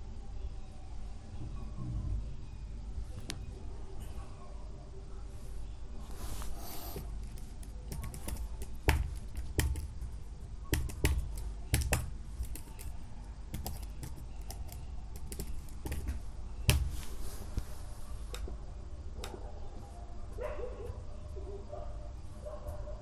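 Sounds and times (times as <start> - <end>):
keyboard keystroke clicks: 7.3 - 9.9, 10.7 - 12.9, 13.5 - 16.9.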